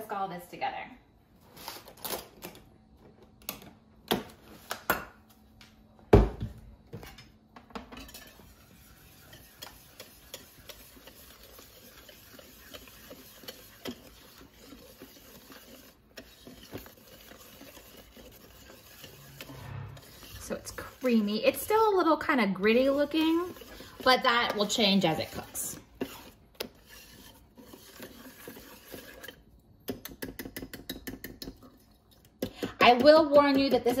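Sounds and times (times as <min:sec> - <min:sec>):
whisk ticking and scraping: 0:08.0 - 0:34.0.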